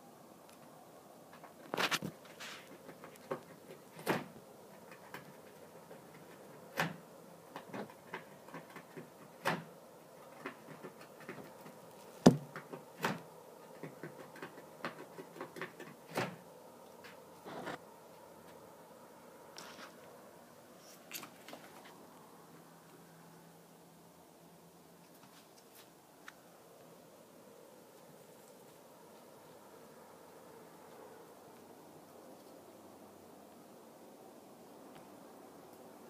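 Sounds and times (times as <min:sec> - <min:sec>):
rabbit gnawing: 0:01.3 - 0:17.8.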